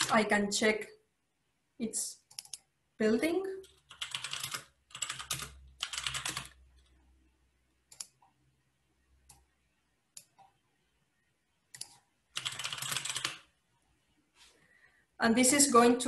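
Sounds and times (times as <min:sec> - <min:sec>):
typing on computer keyboard: 0:02.3 - 0:02.7, 0:03.6 - 0:07.0, 0:11.7 - 0:13.5.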